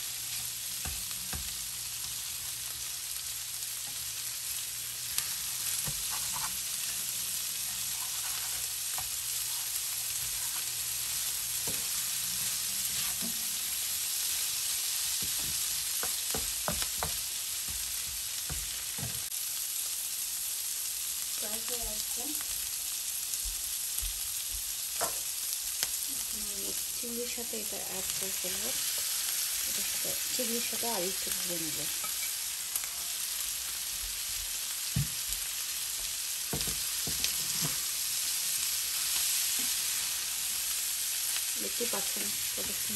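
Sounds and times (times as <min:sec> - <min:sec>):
food sizzling in oil: 0:00.0 - 0:42.9
spatula scraping a pan: 0:05.0 - 0:14.5.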